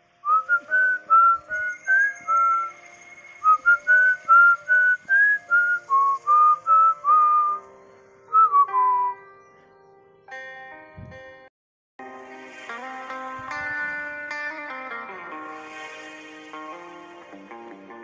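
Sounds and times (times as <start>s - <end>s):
person whistling a melody: 0.2s - 7.7s, 8.3s - 9.3s
instrumental backing track: 3.4s - 18.0s.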